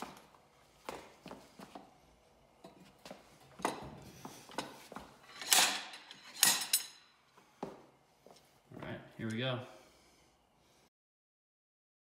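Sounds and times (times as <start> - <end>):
slide hammer metallic clanks: 5.3 - 7.2.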